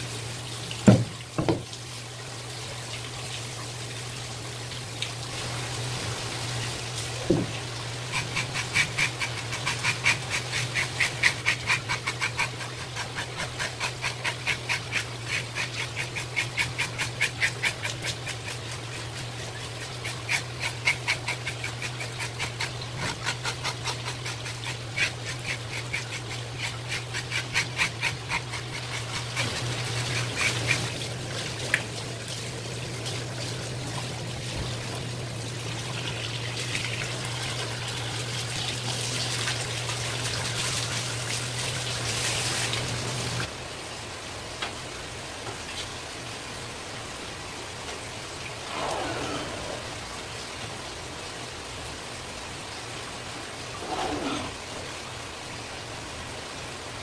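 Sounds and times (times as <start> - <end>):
hose water running: 0.0 - 43.5
metal scaler scraping fish scales: 8.1 - 31.0.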